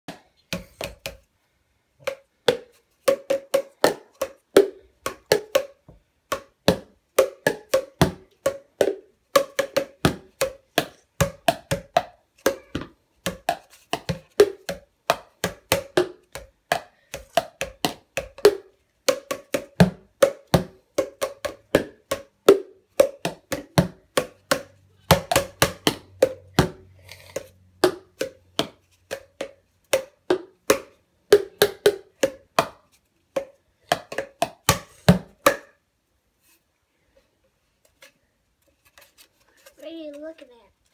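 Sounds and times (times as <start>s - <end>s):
sticks knocking on plastic tubs: 2.0s - 35.8s.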